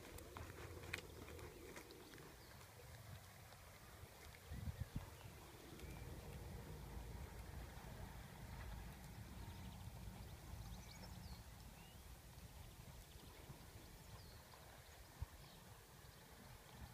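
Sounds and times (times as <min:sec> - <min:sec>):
low wind rumble: 0:00.0 - 0:16.9
muffled horse hoofbeats trotting: 0:00.0 - 0:16.9.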